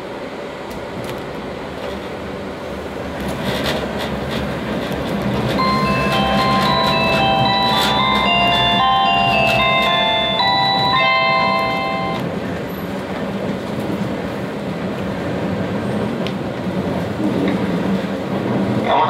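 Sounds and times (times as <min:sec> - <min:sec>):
train rumble inside carriage: 0:00.0 - 0:19.0
bell-like chime melody: 0:05.6 - 0:12.2.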